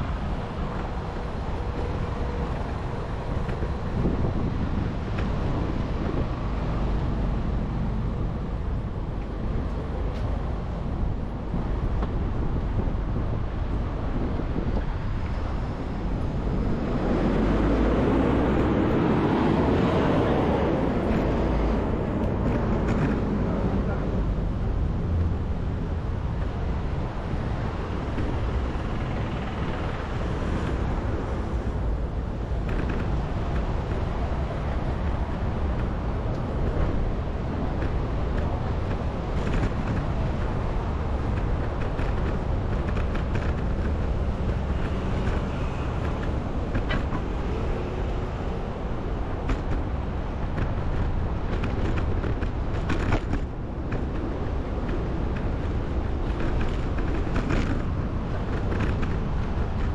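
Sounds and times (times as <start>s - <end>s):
city traffic: 0.0s - 59.9s
road noise: 0.0s - 59.9s
wind on microphone: 0.0s - 59.9s.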